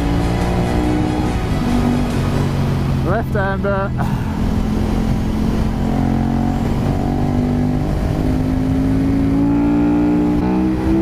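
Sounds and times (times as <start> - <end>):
motorcycle engine accelerating: 0.0 - 11.0
wind rush on microphone: 4.1 - 9.5.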